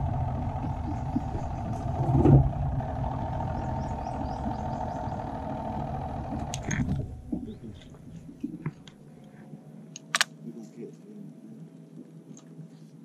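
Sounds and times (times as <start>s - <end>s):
small boat motor running: 0.0s - 8.8s.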